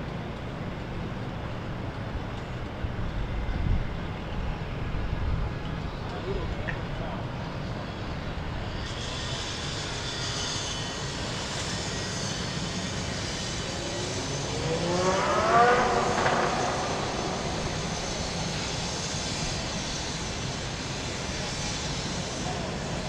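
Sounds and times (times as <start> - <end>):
low rumble of engines: 0.0 - 23.0
water: 5.4 - 10.8
motorboat engine passing: 13.2 - 20.4.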